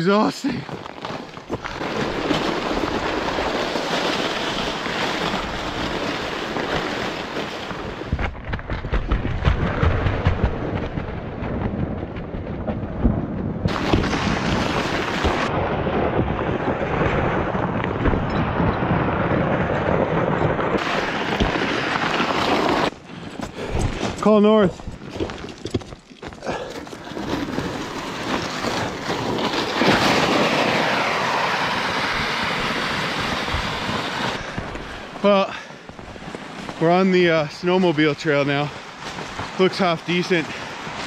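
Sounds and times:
freezing rain hissing: 0:00.0 - 0:08.2, 0:13.7 - 0:15.6, 0:20.8 - 0:25.0, 0:26.4 - 0:41.0
footsteps on icy snow: 0:00.0 - 0:08.3, 0:20.8 - 0:31.5, 0:33.3 - 0:41.0.

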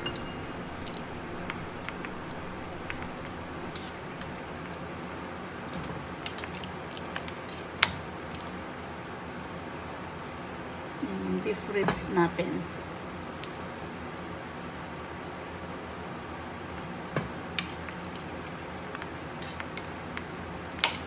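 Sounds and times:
steady hiss: 0:00.0 - 0:06.6.

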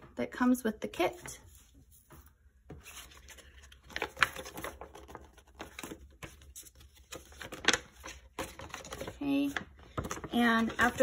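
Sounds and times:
paper rustling: 0:01.2 - 0:11.0.

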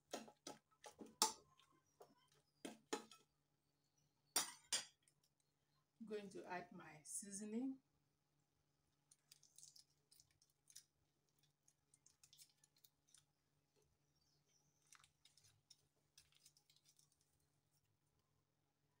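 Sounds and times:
wrapper crinkling: 0:09.1 - 0:13.4, 0:14.8 - 0:17.8.

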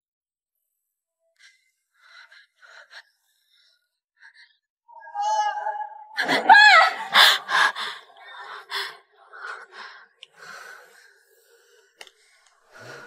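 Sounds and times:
woman gasping and breathing hard: 0:06.2 - 0:09.1.

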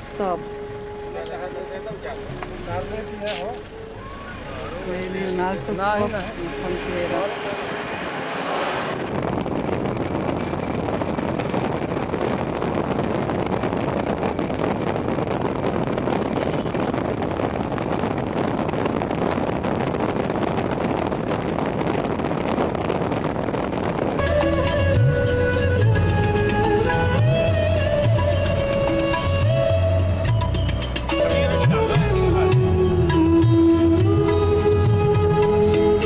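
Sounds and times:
music: 0:00.0 - 0:07.2, 0:24.1 - 0:36.0
road noise inside moving car: 0:00.0 - 0:31.2
wind rushing over microphone: 0:05.0 - 0:31.1.

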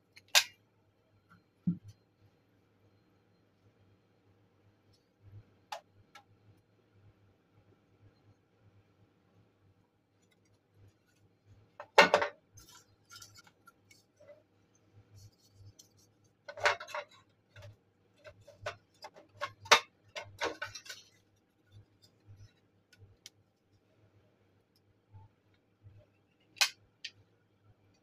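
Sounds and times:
plastic and metal parts knocking: 0:16.5 - 0:21.2.

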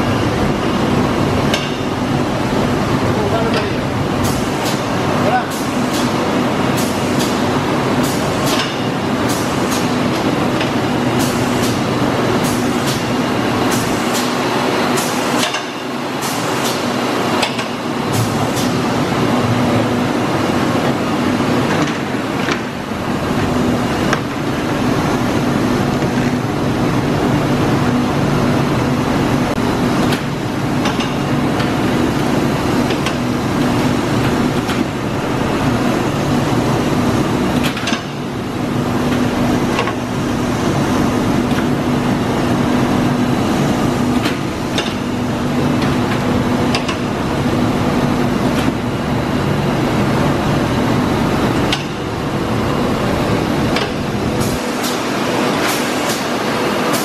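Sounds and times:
machine hum: 0:00.0 - 0:57.0
conveyor clicks and clacks: 0:38.9 - 0:57.0.

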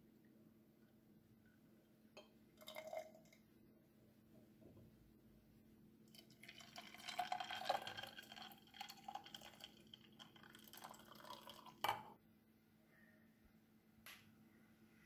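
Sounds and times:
milk pouring into glass jar: 0:02.6 - 0:03.4, 0:06.1 - 0:12.2.

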